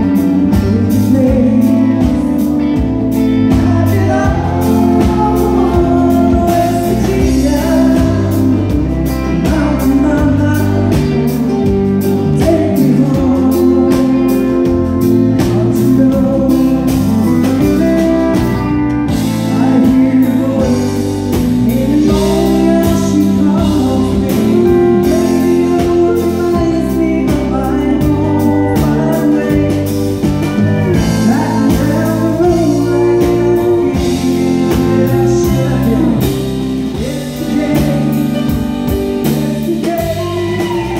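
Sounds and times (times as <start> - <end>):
instrumental accompaniment: 0.0 - 40.9
woman singing into microphone: 39.6 - 40.9.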